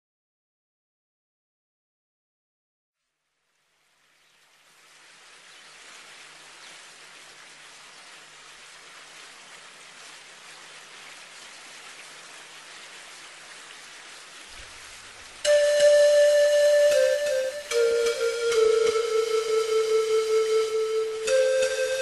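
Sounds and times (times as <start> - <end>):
rain-like hiss: 3.0 - 22.0
flute-like music: 15.4 - 22.0.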